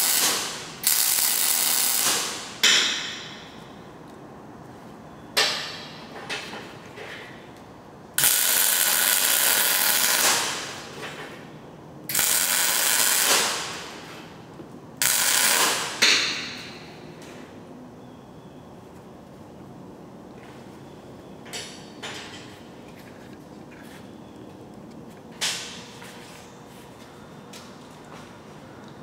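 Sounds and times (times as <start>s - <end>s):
electric arc welding: 0.0s - 3.2s, 8.2s - 11.0s, 12.1s - 14.4s, 15.0s - 16.7s.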